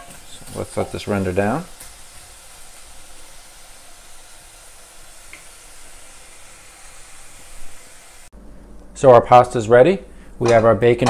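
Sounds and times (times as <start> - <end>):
bacon sizzling in a skillet: 0.0 - 8.3.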